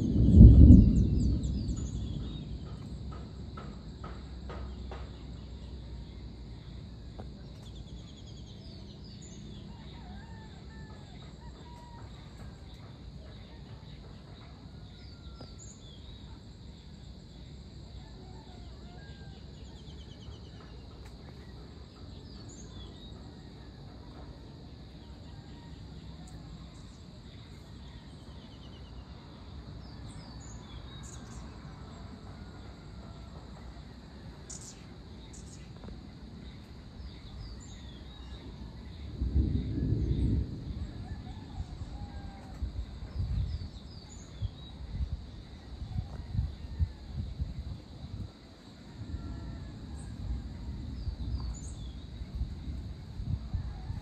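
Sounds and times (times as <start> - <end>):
thunder rumbling: 0.0 - 8.5, 28.9 - 54.0
low outdoor rumble: 0.0 - 54.0.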